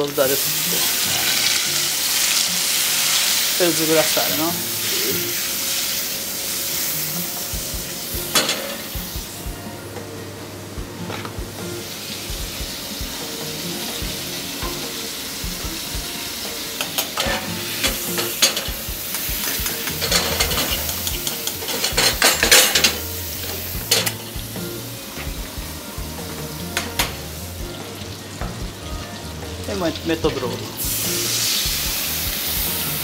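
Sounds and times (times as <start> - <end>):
fish sizzling in butter: 0.0 - 33.0
pan and utensil clinks and scrapes: 8.3 - 8.9, 16.8 - 18.8, 19.4 - 24.3.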